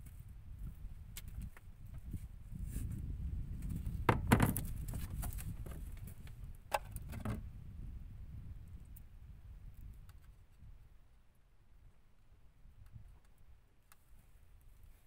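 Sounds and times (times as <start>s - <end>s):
knocks in wooden boat: 4.0s - 5.8s, 6.7s - 7.4s.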